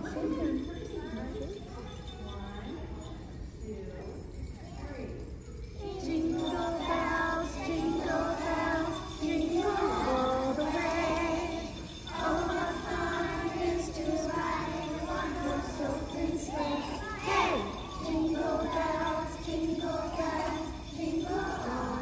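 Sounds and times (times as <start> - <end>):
young children singing together: 5.8 - 22.0.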